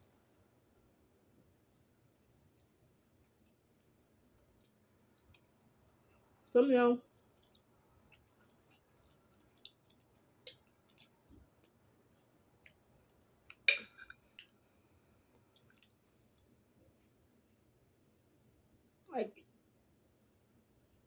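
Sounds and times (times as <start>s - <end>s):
person chewing noodles: 1.7s - 6.5s, 7.1s - 16.6s.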